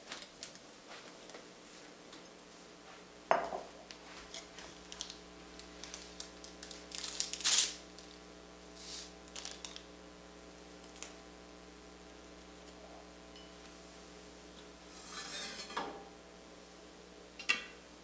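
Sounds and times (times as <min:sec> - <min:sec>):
faint steady hum: 0:00.0 - 0:18.0
ceramic mug clunking on counter: 0:03.3 - 0:03.7
paper wrapper rustling and tearing: 0:04.6 - 0:08.2, 0:08.8 - 0:09.9.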